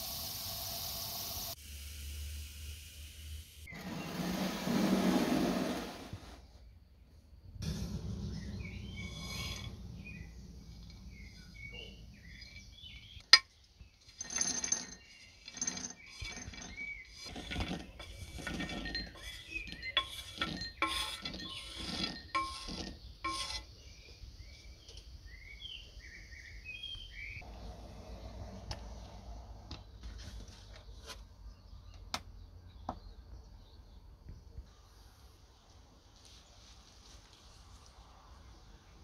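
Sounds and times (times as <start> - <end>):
nuts scraped from a pan: 8.6 - 10.3, 14.2 - 23.7
nuts clattering into glass bowl: 14.1 - 20.9.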